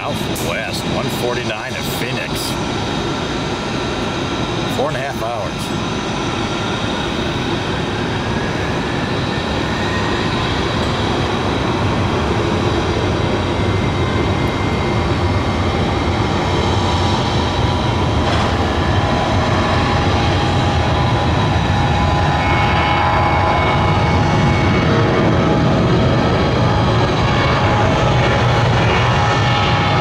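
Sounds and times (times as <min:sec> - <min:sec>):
high whine: 0:00.0 - 0:30.0
jet engines roaring: 0:00.0 - 0:30.0.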